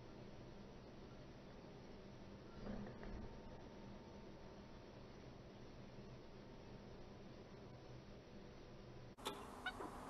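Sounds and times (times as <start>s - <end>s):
faint background hiss: 0.0s - 10.0s.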